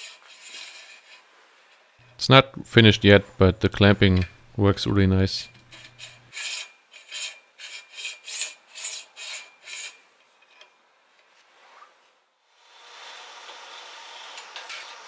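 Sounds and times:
rhythmic rasping metal strokes: 0:05.5 - 0:10.1.

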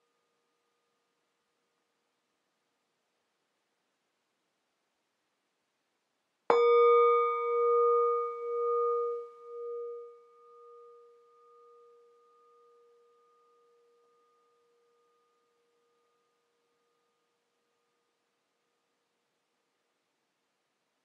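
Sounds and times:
meditation bell ringing: 0:06.5 - 0:18.1.

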